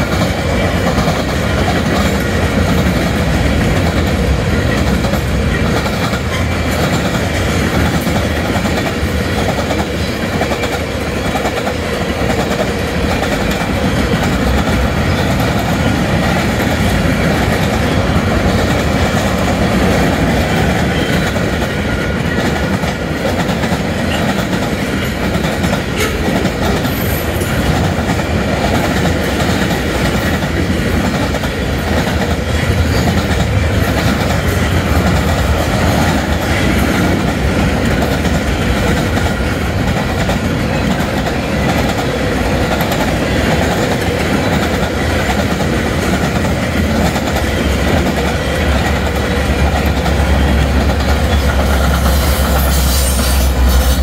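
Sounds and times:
freight train cars rolling past: 0.0 - 54.0
steel wheels on rails: 0.0 - 54.0.

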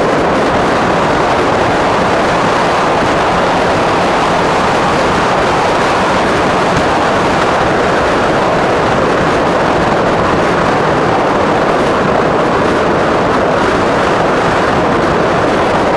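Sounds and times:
tyre noise on asphalt: 0.0 - 10.0
wind rushing: 0.0 - 15.9.

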